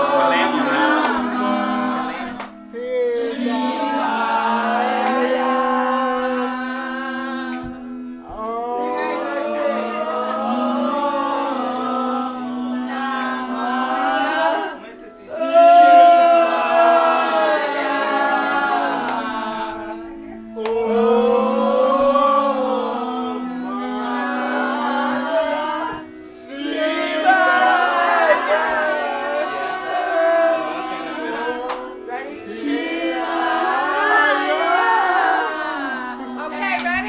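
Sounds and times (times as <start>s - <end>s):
music backing track: 0.0s - 37.0s
person singing: 0.0s - 37.0s.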